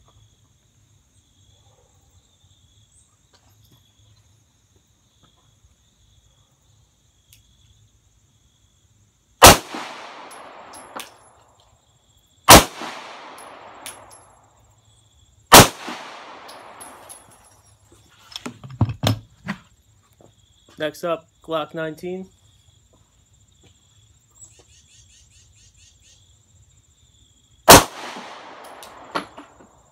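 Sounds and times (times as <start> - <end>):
pistol shots with echo: 9.4 - 11.2, 12.5 - 14.2, 15.5 - 17.2, 27.7 - 29.4.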